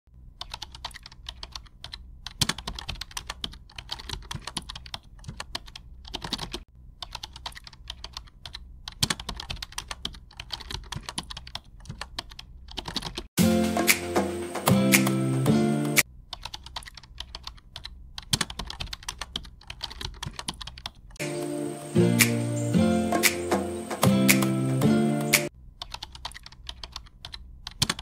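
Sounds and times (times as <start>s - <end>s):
music: 13.4s - 16.0s, 21.2s - 25.5s.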